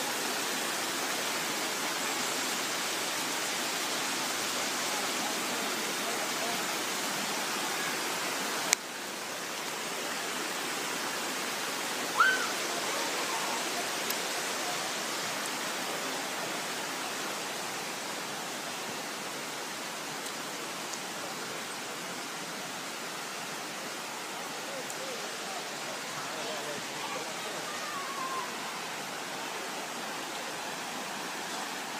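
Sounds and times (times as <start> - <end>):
stream splashing over stones: 0.1 - 31.9.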